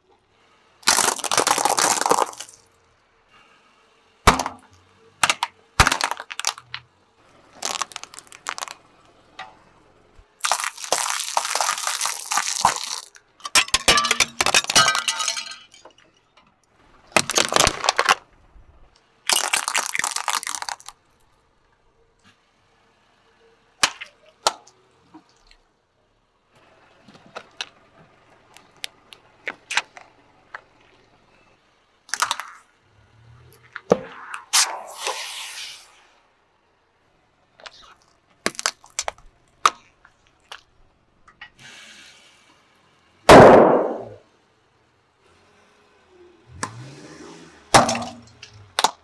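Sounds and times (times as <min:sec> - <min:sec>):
tyre crushing small objects: 0:00.8 - 0:02.7, 0:04.3 - 0:06.8, 0:07.5 - 0:09.0, 0:10.4 - 0:16.1, 0:17.1 - 0:18.3, 0:19.3 - 0:21.0, 0:32.1 - 0:32.6, 0:37.6 - 0:40.7, 0:47.7 - 0:49.0
rushing hiss: 0:34.5 - 0:36.2.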